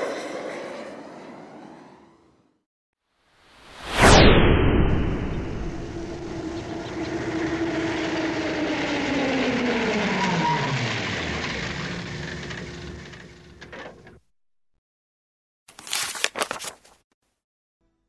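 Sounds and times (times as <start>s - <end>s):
pass-by whoosh effect: 3.6s - 10.4s.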